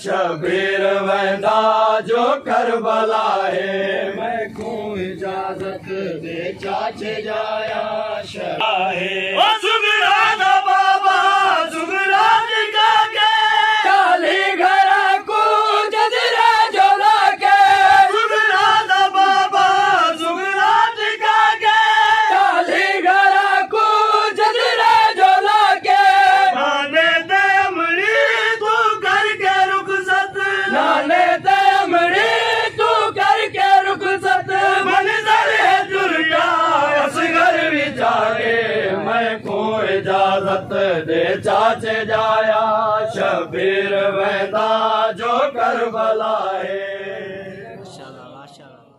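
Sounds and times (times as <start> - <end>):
lead reciter on microphone: 0.0 - 14.0, 47.0 - 48.9
group of men chanting: 0.0 - 48.7.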